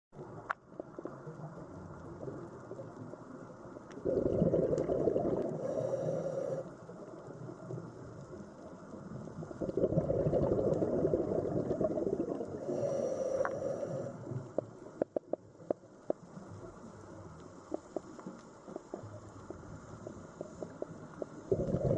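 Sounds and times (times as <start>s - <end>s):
diver's exhaled bubbles: 4.0s - 5.9s, 9.6s - 13.0s, 21.5s - 21.9s.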